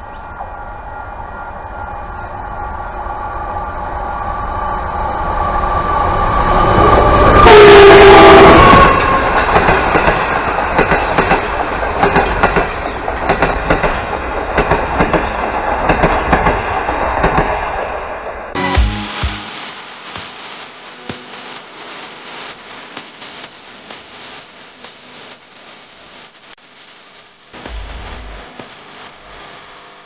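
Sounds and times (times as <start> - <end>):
train rumble: 0.0 - 26.4
train horn: 7.3 - 9.1
train wheels clicking on rail joints: 8.9 - 17.9.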